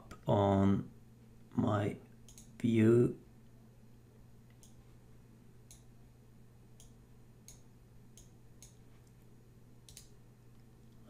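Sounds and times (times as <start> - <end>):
low steady hum: 0.0 - 11.0
faint computer mouse clicks: 2.3 - 2.6, 4.5 - 4.8, 5.7 - 5.9, 6.8 - 9.2, 9.8 - 10.2.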